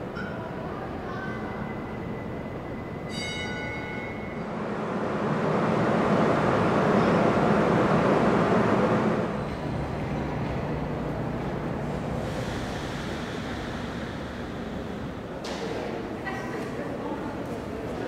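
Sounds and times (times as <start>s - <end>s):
subway train rumbling on tracks: 0.0s - 18.0s
high ringing tone: 1.6s - 4.5s.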